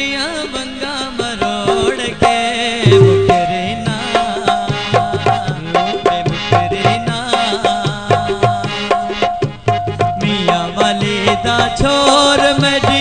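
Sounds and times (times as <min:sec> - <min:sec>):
hand drum rhythm: 0:01.2 - 0:13.0
held melody line: 0:02.9 - 0:04.6.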